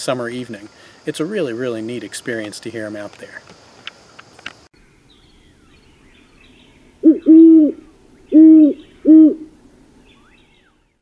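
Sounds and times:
faint songbird chirps: 0:04.8 - 0:11.0
owl hooting: 0:07.0 - 0:09.6.

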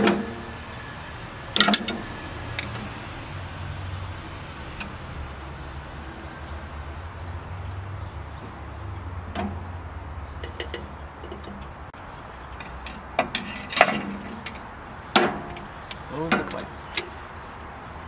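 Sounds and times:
tools knocking on metal wheel: 0:01.6 - 0:02.9, 0:10.4 - 0:11.7.

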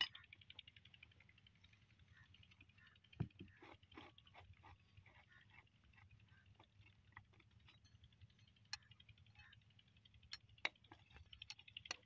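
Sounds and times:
spanner clicking and tapping on metal: 0:07.2 - 0:12.0.

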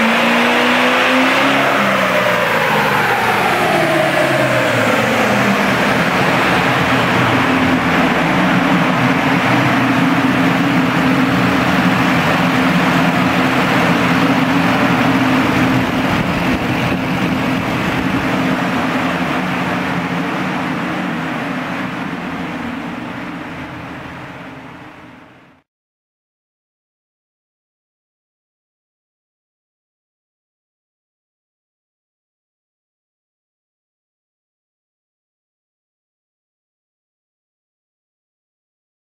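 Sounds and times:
diesel engine hum: 0:00.0 - 0:25.6
steady rushing noise: 0:00.0 - 0:25.6.

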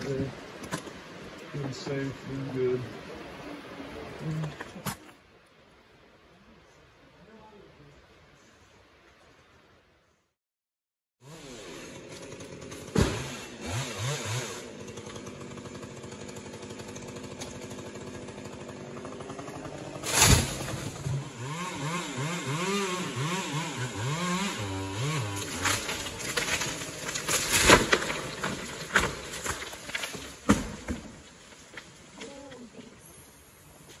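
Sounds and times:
chainsaw revving: 0:11.2 - 0:29.6
heavy thuds of wood dropping: 0:12.8 - 0:13.3, 0:20.0 - 0:21.2, 0:25.4 - 0:31.7.

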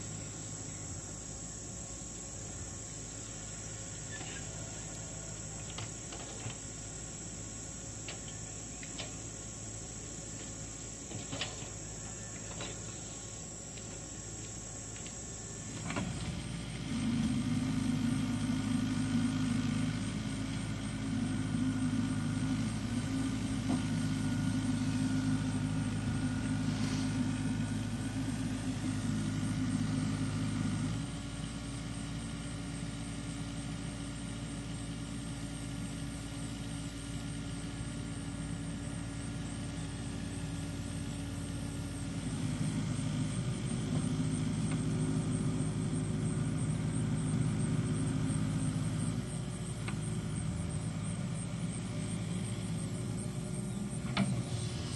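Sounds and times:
low engine drone: 0:00.0 - 0:32.3, 0:36.1 - 0:54.9.

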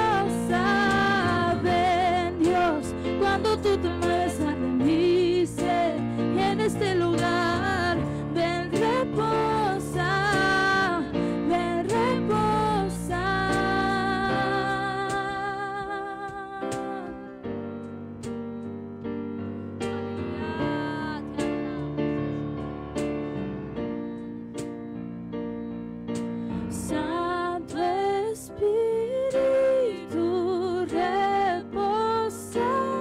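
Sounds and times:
woman singing: 0:00.0 - 0:17.4, 0:20.3 - 0:21.9, 0:26.7 - 0:33.0
keyboard chords: 0:00.0 - 0:33.0.

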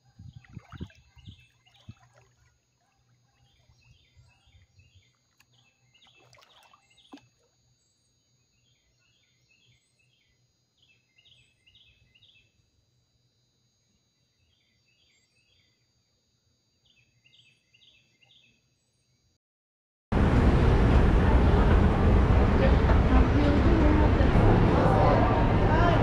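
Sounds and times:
birds chirping: 0:00.0 - 0:07.2.

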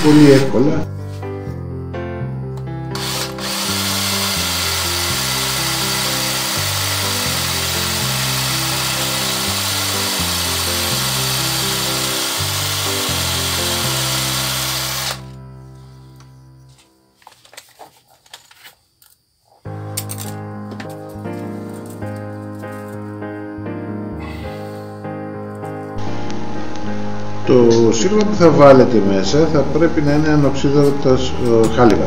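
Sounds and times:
electric drill boring wood: 0:02.9 - 0:15.4.

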